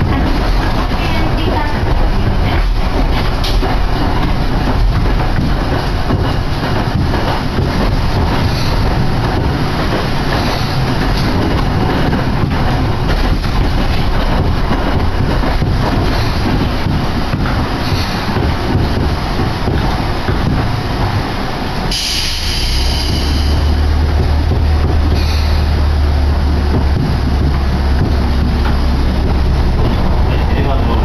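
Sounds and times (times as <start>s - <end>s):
tram wheels rumbling on track: 0.0s - 31.0s.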